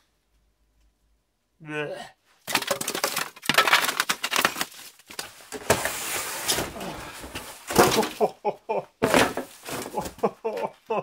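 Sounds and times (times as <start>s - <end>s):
foam and cardboard crunching: 2.4s - 8.3s, 9.0s - 10.4s.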